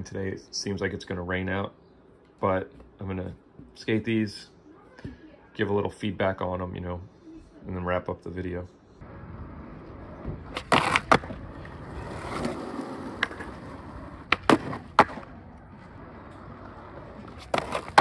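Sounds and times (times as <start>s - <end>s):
skateboard wheels rolling: 9.0s - 18.0s
skateboard clacks: 10.0s - 18.0s.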